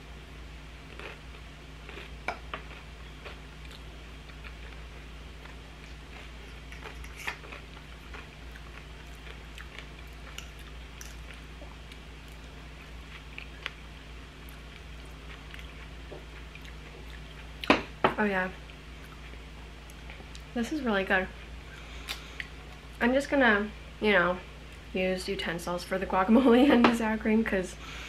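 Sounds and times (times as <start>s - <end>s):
steady low hum: 0.0s - 28.0s
chewing crunchy crackers: 0.8s - 17.8s.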